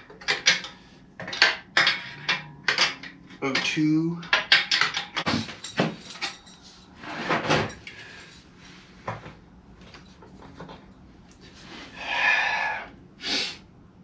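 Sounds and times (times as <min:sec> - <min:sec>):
metallic clicks knocks and scrapes: 0:00.0 - 0:08.0.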